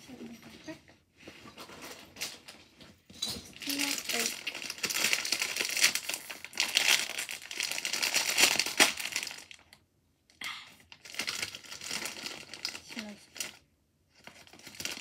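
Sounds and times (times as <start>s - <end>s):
plastic snack bag crinkling: 3.5s - 9.8s, 10.8s - 15.0s.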